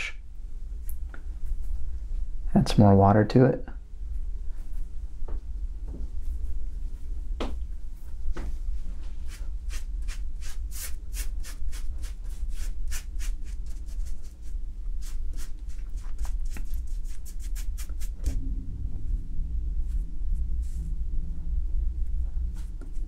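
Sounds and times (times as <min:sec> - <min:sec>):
low hum: 0:00.0 - 0:11.1, 0:13.6 - 0:23.0
brush swishing across wet paper: 0:08.8 - 0:18.3, 0:20.6 - 0:20.9.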